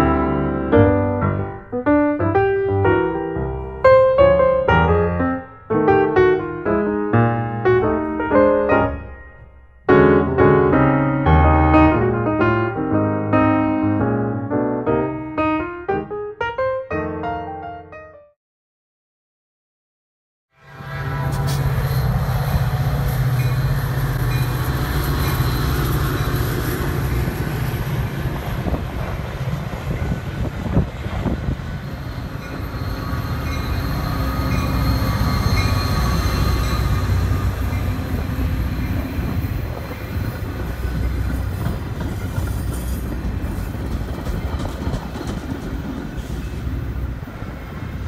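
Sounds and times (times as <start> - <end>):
diesel locomotive engine drone: 20.6 - 48.0
passenger cars rumbling on rails: 20.7 - 48.0.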